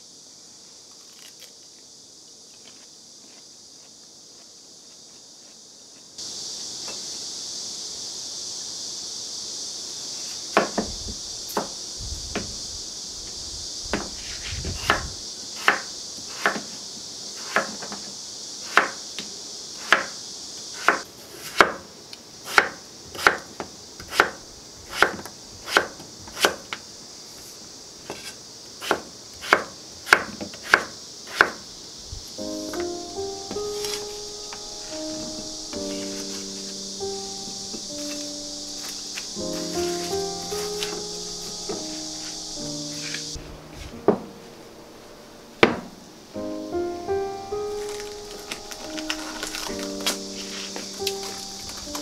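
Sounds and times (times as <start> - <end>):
steady high hiss: 0.0 - 52.0
knife slicing potatoes on wooden board: 24.0 - 26.6, 28.1 - 31.6.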